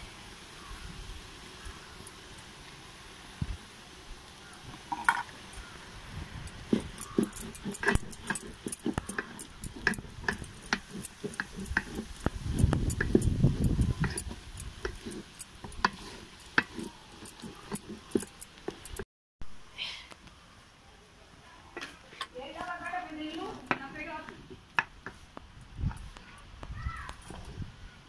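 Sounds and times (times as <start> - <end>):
spatula scraping metal pot: 6.5 - 19.0.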